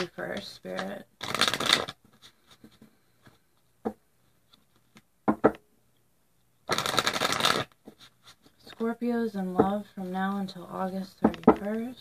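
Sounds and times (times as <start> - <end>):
cards shuffled by hand: 0.0 - 3.4, 6.6 - 8.9
card handling: 0.7 - 2.8, 6.7 - 8.6.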